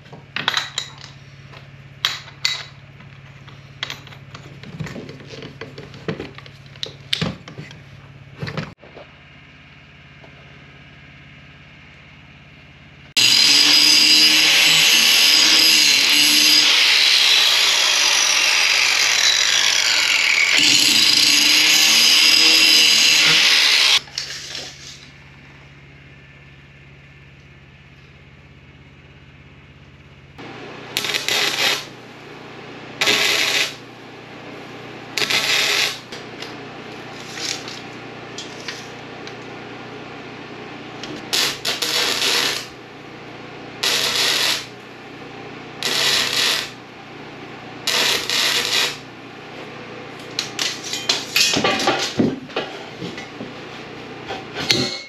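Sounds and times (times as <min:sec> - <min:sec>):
electric welder bursts: 0:13.2 - 0:24.6, 0:30.4 - 0:32.0, 0:33.0 - 0:33.9, 0:35.1 - 0:36.5, 0:41.0 - 0:42.8, 0:43.8 - 0:44.8, 0:45.8 - 0:46.8, 0:47.8 - 0:49.1.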